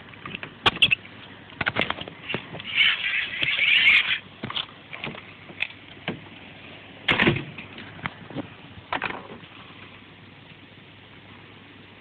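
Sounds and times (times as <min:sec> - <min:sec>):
hand-powered flashlight scraping: 0:02.2 - 0:04.3.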